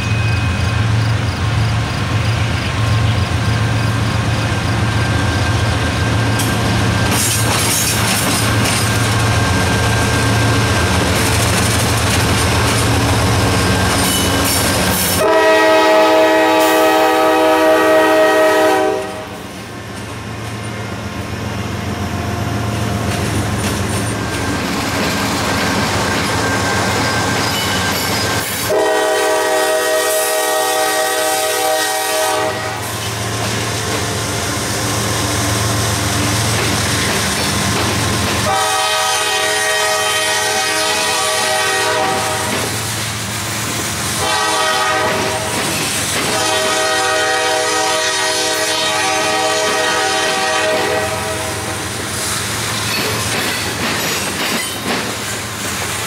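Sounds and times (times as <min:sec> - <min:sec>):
diesel locomotive drone: 0:00.0 - 0:56.0
rail cars clattering past: 0:00.0 - 0:56.0
train air horn blasts: 0:14.1 - 0:19.5, 0:28.6 - 0:33.2, 0:38.4 - 0:42.7, 0:44.2 - 0:45.6, 0:46.2 - 0:51.8.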